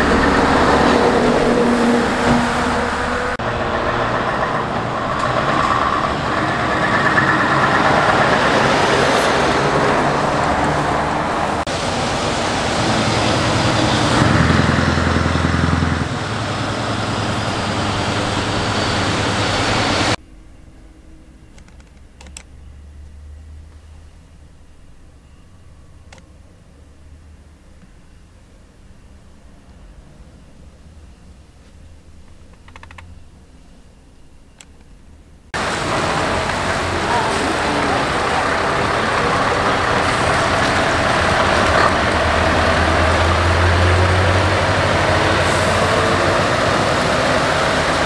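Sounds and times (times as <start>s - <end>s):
truck engines driving past: 0.0s - 20.2s, 35.5s - 48.0s.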